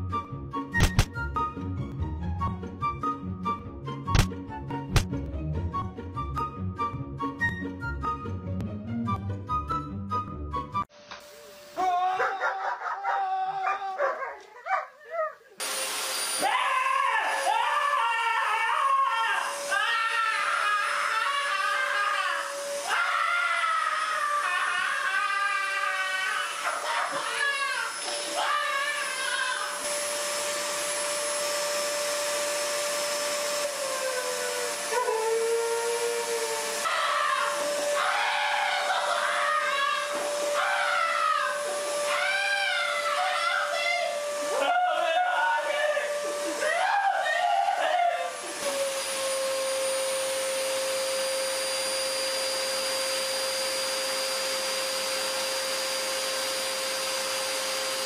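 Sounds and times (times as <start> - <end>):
vacuum cleaner running: 10.9 - 12.8, 15.6 - 58.0
howl-like vocal sound: 11.8 - 15.4
husky howling: 11.8 - 15.6, 33.8 - 43.5.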